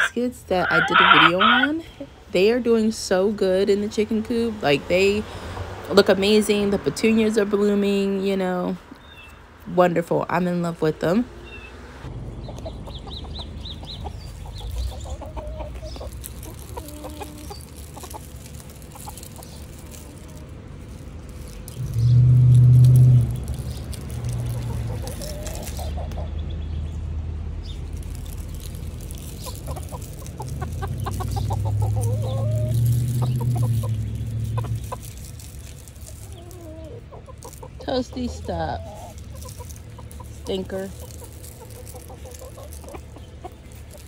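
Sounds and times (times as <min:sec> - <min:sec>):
chickens clucking: 0:00.0 - 0:09.4, 0:10.4 - 0:27.0, 0:27.6 - 0:44.0
low rumble: 0:11.4 - 0:44.0.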